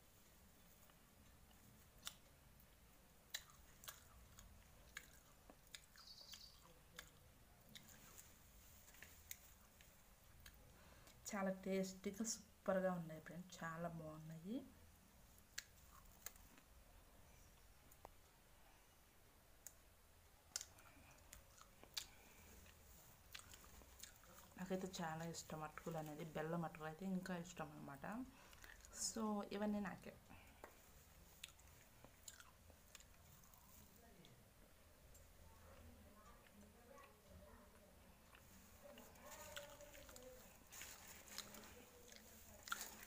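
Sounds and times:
person chewing crunchy food: 0:00.8 - 0:11.2, 0:20.5 - 0:24.6, 0:28.5 - 0:28.9, 0:30.5 - 0:33.8, 0:38.3 - 0:43.0
mouth clicks and lip smacks: 0:00.9 - 0:11.2, 0:15.4 - 0:16.7, 0:20.5 - 0:24.6.

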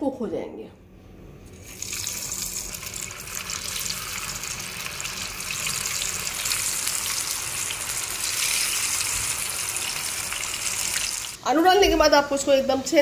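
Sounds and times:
potatoes sizzling in hot oil: 0:01.6 - 0:11.4.

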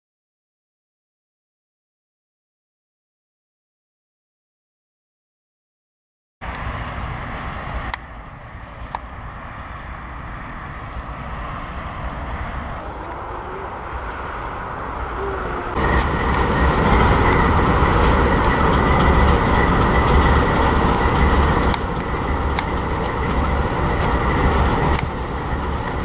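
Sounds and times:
diesel locomotives passing: 0:06.4 - 0:26.0
high whine: 0:06.4 - 0:26.0
wheels clicking on track: 0:06.4 - 0:26.0.

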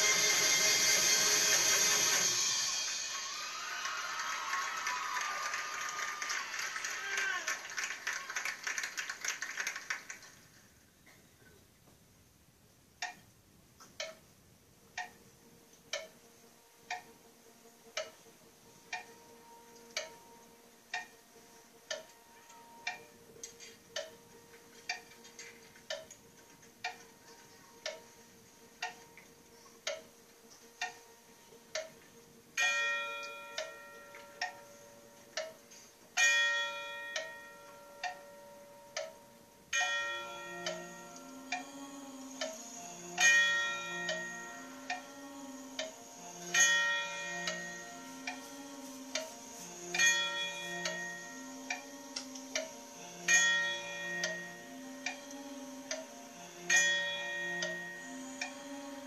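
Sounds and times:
tubular bells ringing: 0:00.0 - 0:06.5, 0:32.6 - 0:59.0
clock-like percussion tick: 0:00.0 - 0:10.3, 0:12.7 - 0:59.0.

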